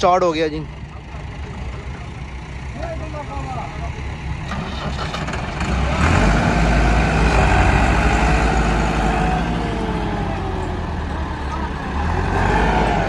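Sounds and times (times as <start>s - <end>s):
tractor diesel engine revving: 0.0s - 13.0s.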